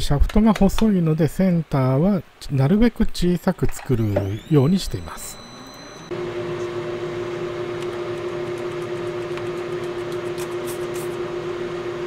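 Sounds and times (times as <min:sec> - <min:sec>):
metal lathe motor hum: 0:04.2 - 0:10.0.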